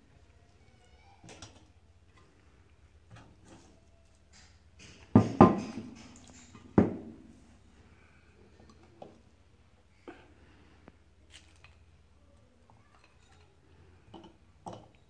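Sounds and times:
sharp knocks on a pot: 5.1s - 6.2s.

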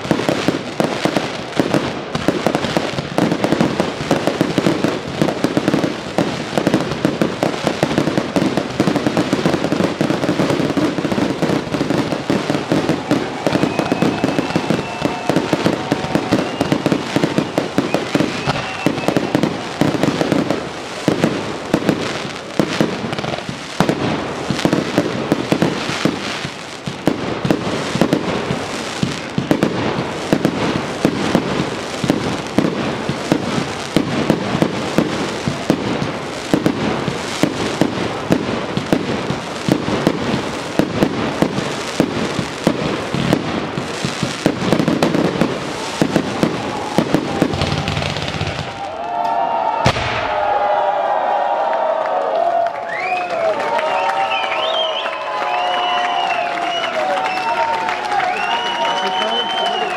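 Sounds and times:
fireworks bangs and crackling: 0.0s - 59.9s
faint whistling tone: 17.9s - 19.4s, 54.0s - 57.6s, 58.2s - 59.9s.

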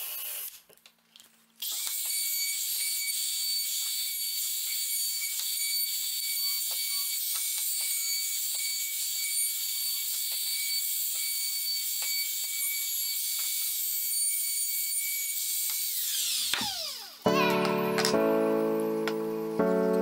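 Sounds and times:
router high-pitched whine: 1.6s - 17.3s.

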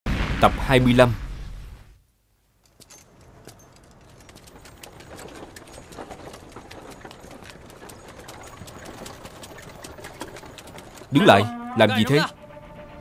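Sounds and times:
hooves clip-clopping: 2.6s - 12.8s.

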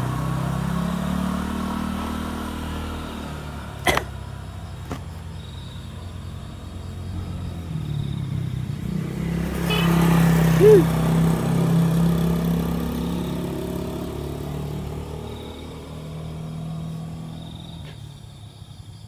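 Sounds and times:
vehicle engine humming: 0.0s - 18.9s.

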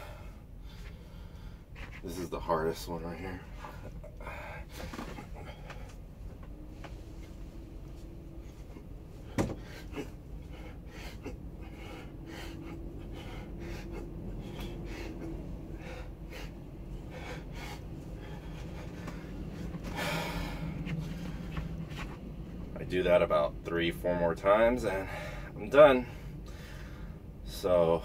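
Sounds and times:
man panting: 3.5s - 6.2s, 8.3s - 22.0s, 24.9s - 27.3s.

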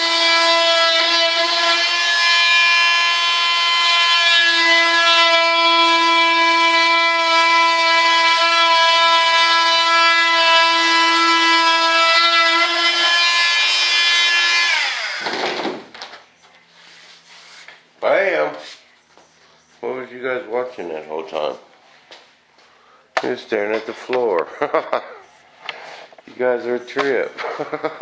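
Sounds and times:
saw winding down: 0.0s - 15.6s
electric saw whining: 0.0s - 15.8s.

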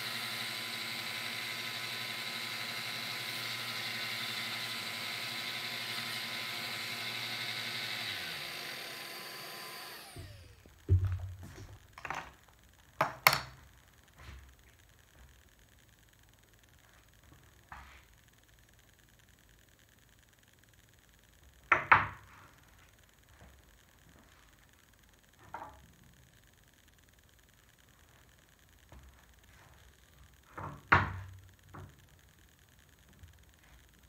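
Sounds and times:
motor winding down: 0.0s - 13.0s
belt sander whining: 0.0s - 18.2s.

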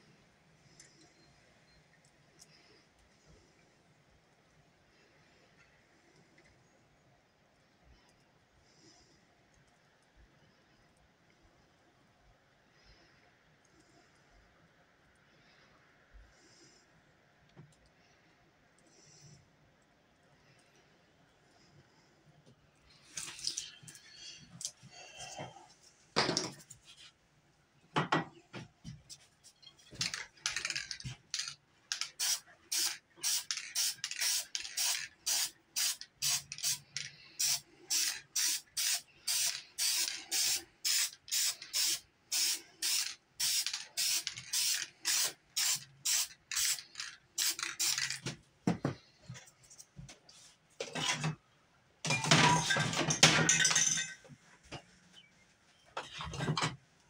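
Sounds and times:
spray paint can hissing: 31.4s - 48.2s.

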